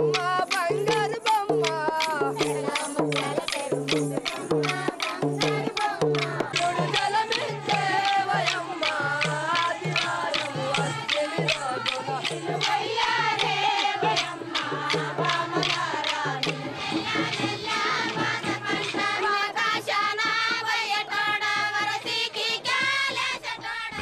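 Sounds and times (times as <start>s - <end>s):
quick drum beat: 0.0s - 19.0s
voices singing a folk song: 0.0s - 24.0s.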